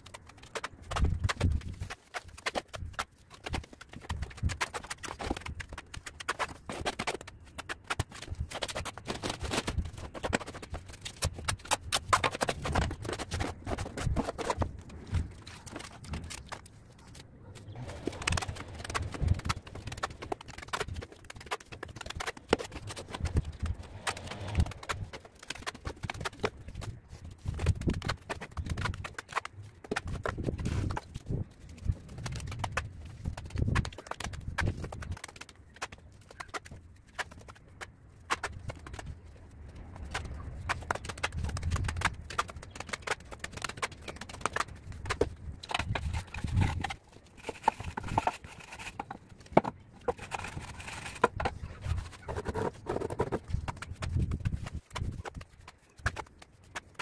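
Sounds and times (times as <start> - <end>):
trowel scraping mortar on bricks: 45.2 - 54.3.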